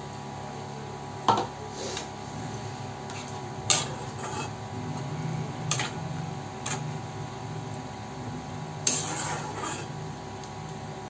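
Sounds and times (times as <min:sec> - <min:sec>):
steady low hum: 0:00.0 - 0:11.0
spatula stirring curry: 0:03.0 - 0:07.3, 0:08.7 - 0:10.1.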